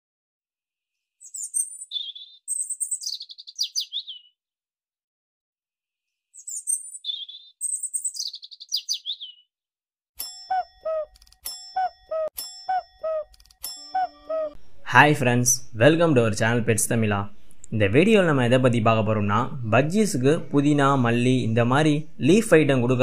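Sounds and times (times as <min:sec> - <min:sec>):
songbird chirping and trilling: 0:01.2 - 0:04.4, 0:06.3 - 0:09.5, 0:10.3 - 0:15.0
bell-like ding: 0:10.2 - 0:14.3.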